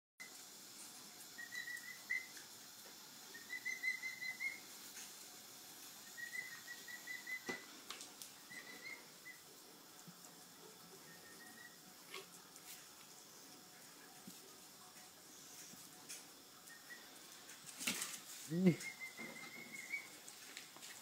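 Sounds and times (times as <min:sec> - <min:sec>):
young emu high peeps: 0:01.4 - 0:02.4, 0:03.3 - 0:04.7, 0:06.0 - 0:07.6, 0:08.4 - 0:09.5, 0:11.0 - 0:11.8, 0:18.5 - 0:20.2.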